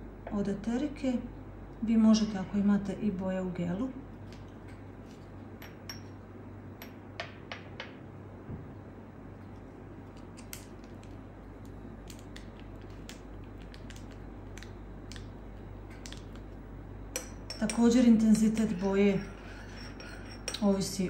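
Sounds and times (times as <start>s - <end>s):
steady low hum: 0.0s - 21.0s
teaspoon tapping glass and ceramic: 5.6s - 6.2s, 6.8s - 7.9s, 17.2s - 17.9s.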